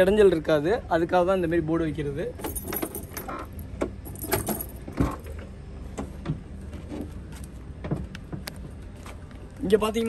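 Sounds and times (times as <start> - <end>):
steady low hum: 0.0 - 10.0
metallic jingling: 2.4 - 4.9.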